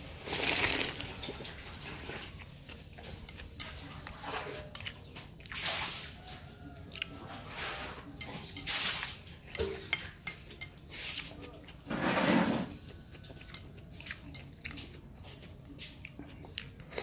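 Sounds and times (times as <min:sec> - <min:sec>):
wet slurps and sips: 0:00.2 - 0:02.4.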